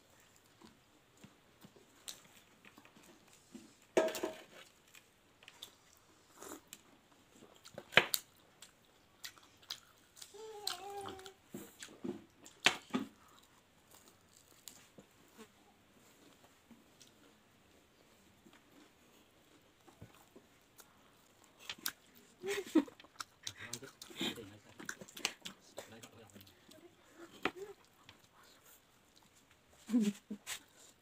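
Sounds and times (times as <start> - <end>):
crispy fritters crunching: 12.4 - 15.0.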